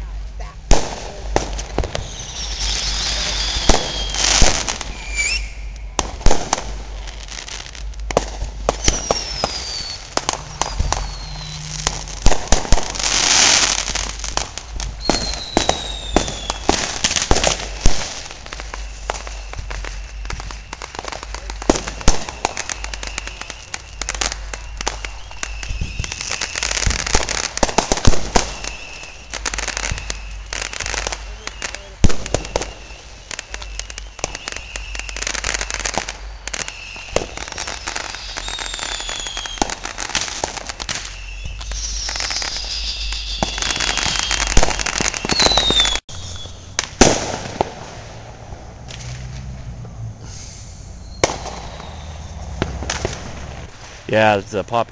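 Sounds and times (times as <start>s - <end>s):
crackling hiss: 0.0s - 54.9s
fireworks bangs and pops: 0.0s - 54.9s
falling firework whistles: 0.7s - 54.5s
steady whistle: 2.0s - 6.0s, 8.8s - 12.2s, 15.0s - 16.7s, 18.5s - 27.2s, 28.5s - 39.8s, 40.8s - 46.8s, 50.3s - 52.6s.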